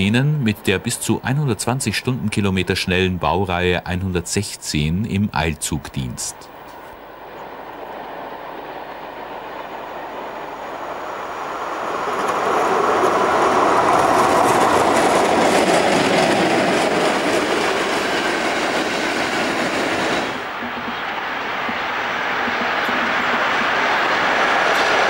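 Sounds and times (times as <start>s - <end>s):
train wheels on rails: 0.0s - 25.0s.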